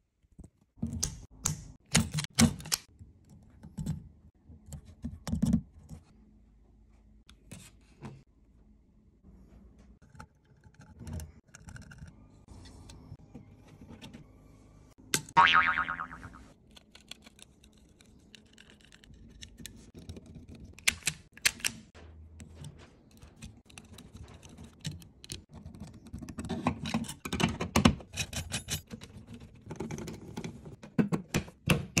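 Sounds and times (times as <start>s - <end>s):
small clicks and scrapes of plastic: 10.0s - 13.0s, 16.5s - 27.4s.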